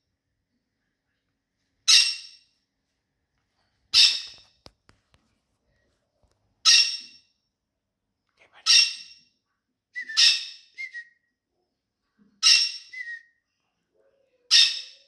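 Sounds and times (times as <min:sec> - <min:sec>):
parrot chirp: 0:01.9 - 0:02.4, 0:03.9 - 0:04.5, 0:06.6 - 0:07.2, 0:08.6 - 0:09.3, 0:10.0 - 0:10.8, 0:12.4 - 0:13.2, 0:14.5 - 0:15.0
parrots screeching: 0:04.0 - 0:04.5, 0:06.6 - 0:07.2, 0:10.2 - 0:10.6, 0:12.4 - 0:12.9, 0:14.5 - 0:15.0.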